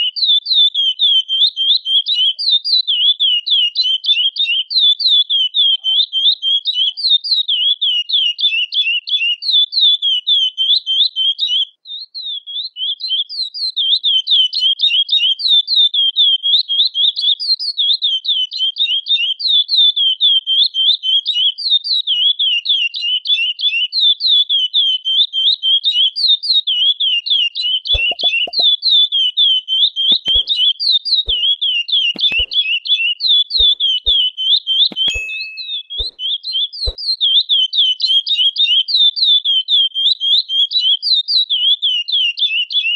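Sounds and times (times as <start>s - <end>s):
finch singing high chirps: 27.9s - 28.7s, 29.8s - 30.6s, 31.2s - 32.8s, 33.6s - 38.8s
faint clicks: 32.2s - 32.6s.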